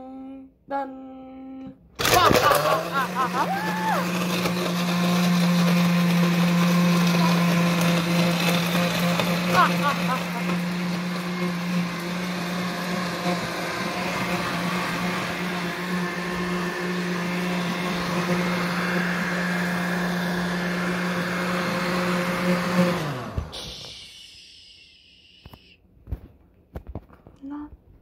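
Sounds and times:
blender motor running: 2.0s - 25.6s.

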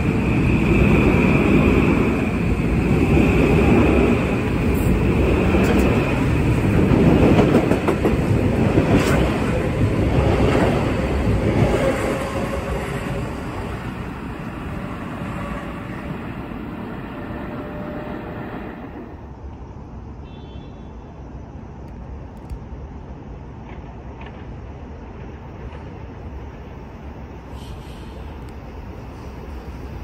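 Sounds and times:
train wheels rumbling: 0.0s - 19.4s.

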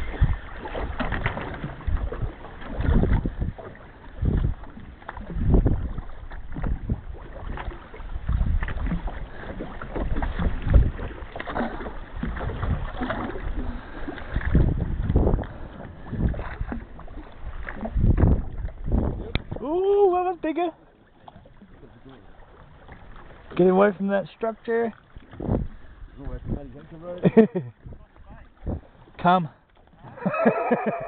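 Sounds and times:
wind buffeting microphone: 0.0s - 20.5s, 25.2s - 29.2s
water slapping boat hull: 0.0s - 31.0s.

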